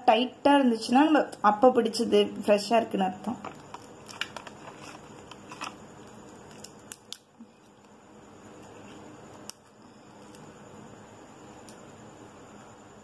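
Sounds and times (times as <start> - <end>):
prawn shell clicking and crackling: 3.4 - 8.0.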